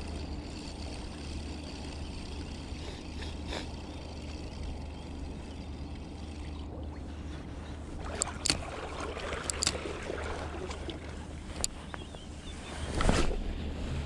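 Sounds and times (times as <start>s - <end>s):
fishing reel clicking: 0.0s - 6.5s, 9.4s - 9.8s
low wind rumble: 0.0s - 14.0s
lapping water: 2.6s - 4.6s, 6.3s - 11.4s.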